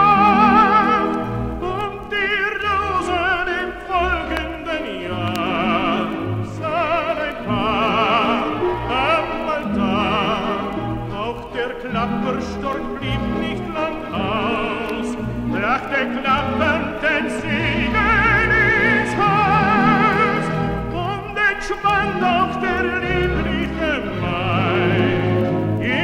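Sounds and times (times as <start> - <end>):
orchestra playing: 0.0 - 26.0
person singing with vibrato: 0.0 - 26.0.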